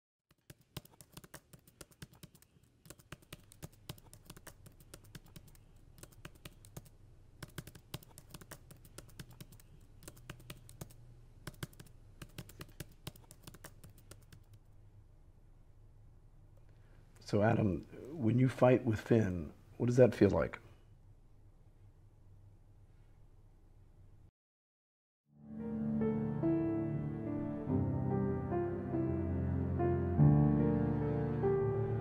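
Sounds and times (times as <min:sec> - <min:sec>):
laptop keyboard typing: 0:00.3 - 0:14.6
faint low hum: 0:02.3 - 0:24.3.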